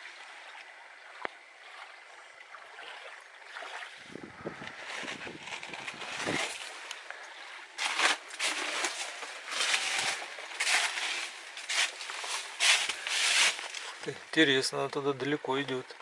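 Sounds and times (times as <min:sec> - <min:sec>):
footsteps crunching on leaves: 0:04.7 - 0:14.2.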